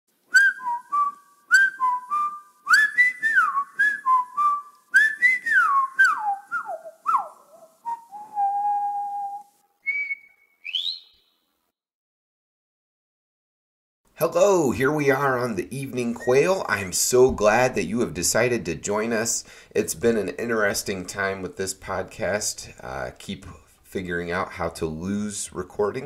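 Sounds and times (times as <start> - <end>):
person whistling a tune: 0.3 - 11.1.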